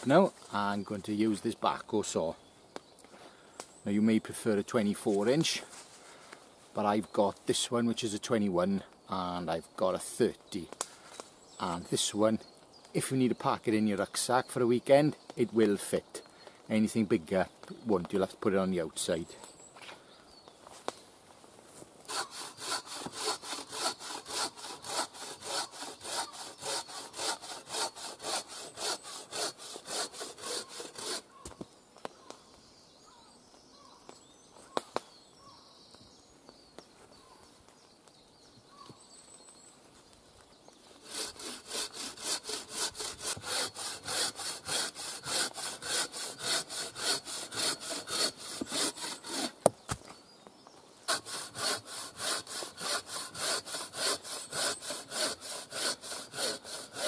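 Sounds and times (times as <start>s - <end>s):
bow saw cutting log: 22.1s - 31.4s, 40.8s - 49.7s, 51.1s - 57.0s.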